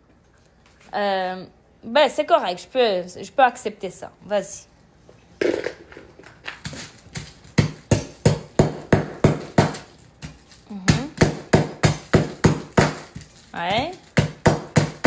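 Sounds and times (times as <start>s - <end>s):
knife chopping hard sugar: 6.7s - 15.0s.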